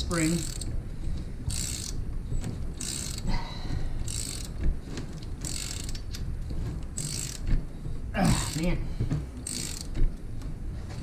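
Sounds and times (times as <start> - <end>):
ratchet wrench clicking: 0.0 - 0.7, 1.5 - 2.0, 2.8 - 3.3, 4.0 - 4.7, 5.4 - 6.2, 7.0 - 7.6, 8.4 - 8.7, 9.4 - 10.0.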